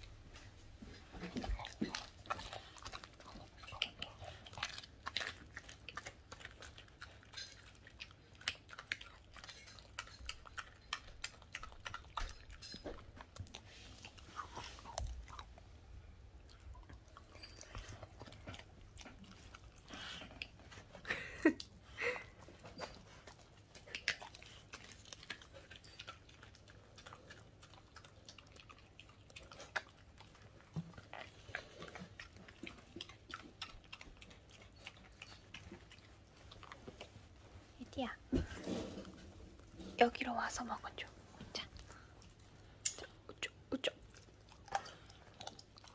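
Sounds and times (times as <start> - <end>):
dog chewing raw chicken: 0.0 - 21.0, 22.8 - 37.4, 41.7 - 45.9
wet crunches and teeth clicks: 42.2 - 45.9.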